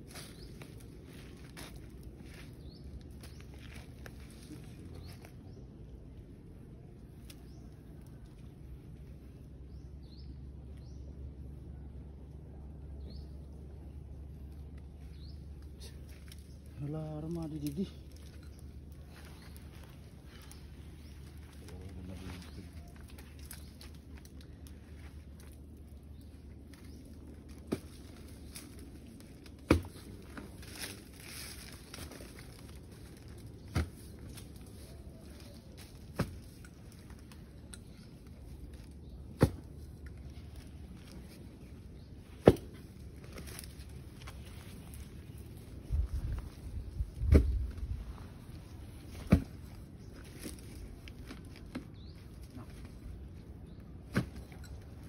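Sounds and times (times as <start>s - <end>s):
earth crunching: 0.0s - 55.0s
digging tool thudding into soil: 29.5s - 30.1s, 39.3s - 39.8s, 42.4s - 42.9s, 47.2s - 47.8s, 49.1s - 49.7s, 54.0s - 54.6s.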